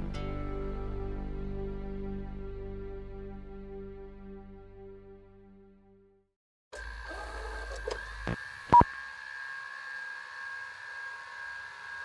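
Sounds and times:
electronic buzzing hum: 6.8s - 12.0s.

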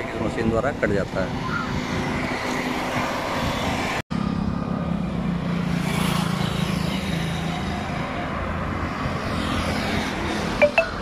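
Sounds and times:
vehicles passing: 0.0s - 11.0s.

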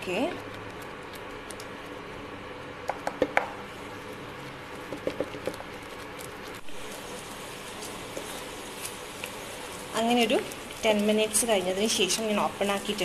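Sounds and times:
wooden spatula stirring: 4.7s - 12.3s
thick sauce bubbles popping: 4.8s - 7.0s.

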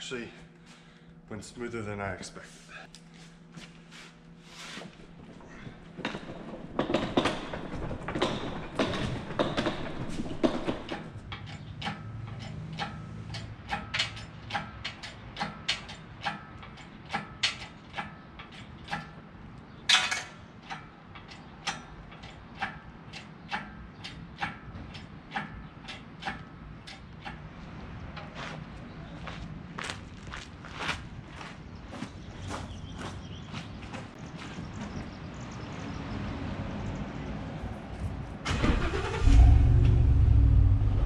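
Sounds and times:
metal rattling: 5.2s - 19.2s
sharp metallic clicks: 10.4s - 19.2s, 19.9s - 27.6s.

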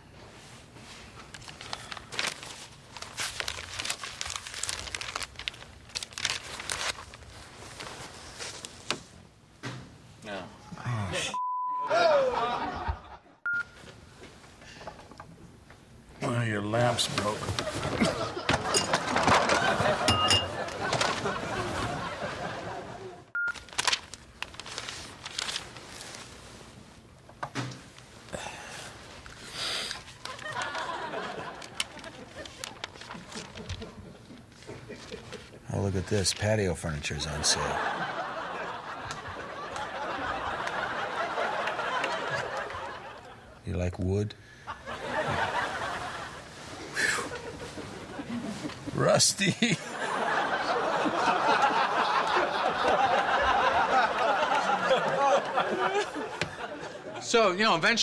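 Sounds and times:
paper crinkling: 0.8s - 9.1s, 16.9s - 22.6s, 23.4s - 27.0s, 28.9s - 36.5s.

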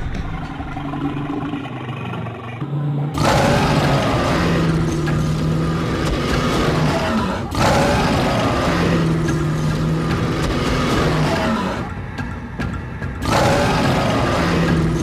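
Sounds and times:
cartoon gorilla roars: 3.2s - 4.8s, 6.4s - 9.2s, 13.2s - 15.0s.

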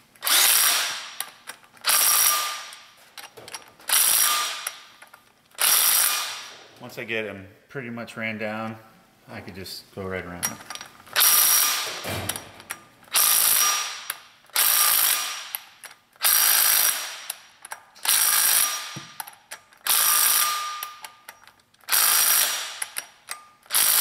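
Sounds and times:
impact wrench bursts: 0.2s - 3.0s, 3.8s - 4.9s, 5.6s - 6.6s, 11.1s - 12.4s, 13.1s - 21.1s, 21.8s - 24.0s.

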